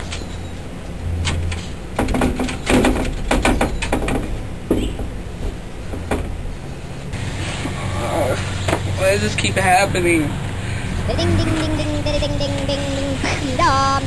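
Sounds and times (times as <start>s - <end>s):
locked door rattling and knocking: 1.2s - 5.2s, 5.8s - 6.4s.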